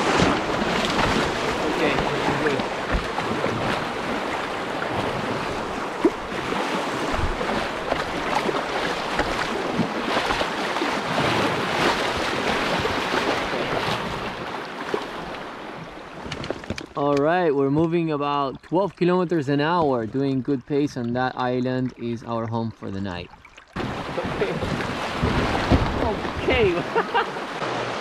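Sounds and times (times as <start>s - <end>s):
river water rushing and splashing: 0.0s - 17.0s, 23.3s - 28.0s
wind buffeting microphone: 23.8s - 26.9s.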